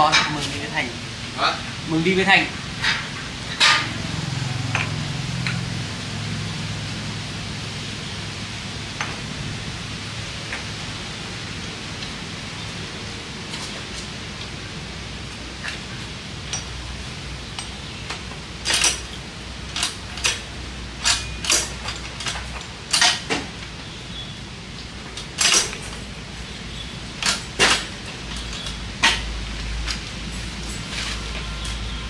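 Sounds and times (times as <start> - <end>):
wrench clinking on metal bolts: 18.6 - 23.4, 25.2 - 26.0.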